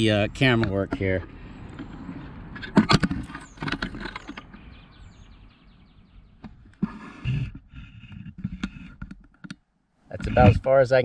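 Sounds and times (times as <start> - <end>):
camera scraping against bark: 0.5 - 5.4, 6.4 - 9.5, 10.1 - 10.7.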